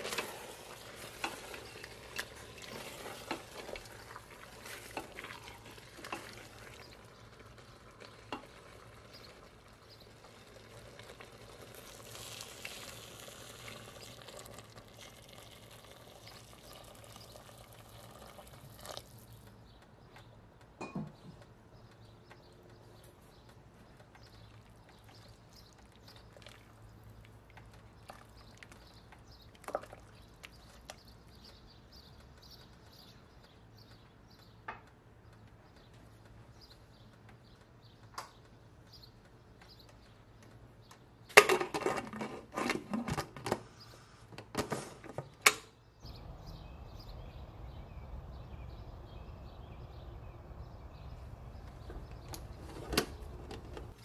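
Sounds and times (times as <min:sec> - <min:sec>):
broth simmering: 0:00.0 - 0:20.4, 0:22.8 - 0:33.6.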